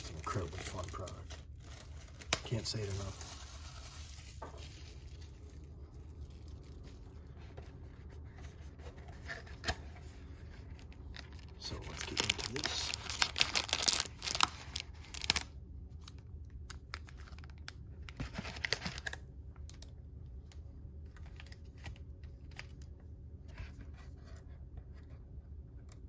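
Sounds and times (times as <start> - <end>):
wrapping tearing and crinkling: 0.0 - 8.1, 9.0 - 19.9.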